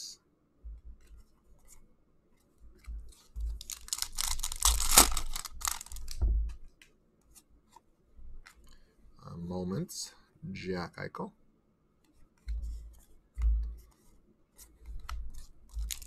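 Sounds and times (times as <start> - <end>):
foil wrapper tearing and crinkling: 3.4 - 6.2, 15.7 - 16.0
faint ticks of cards handled: 12.0 - 16.0.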